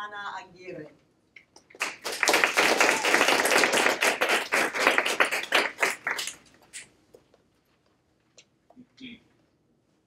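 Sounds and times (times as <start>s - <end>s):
small audience applauding: 1.7s - 6.8s.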